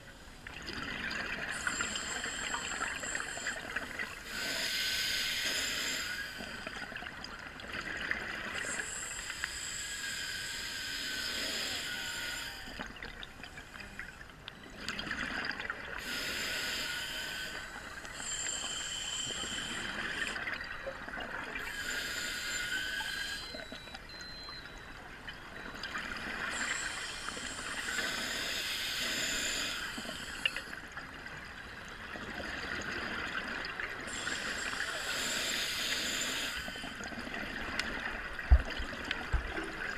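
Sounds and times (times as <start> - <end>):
diver breathing through regulator: 1.5 - 6.7, 8.6 - 12.8, 16.0 - 20.5, 21.6 - 23.9, 26.2 - 30.8, 34.0 - 37.0.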